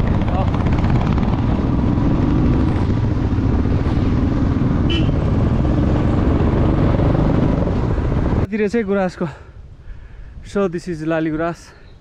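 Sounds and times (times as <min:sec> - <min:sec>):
motorcycle engine rumble: 0:00.0 - 0:08.5.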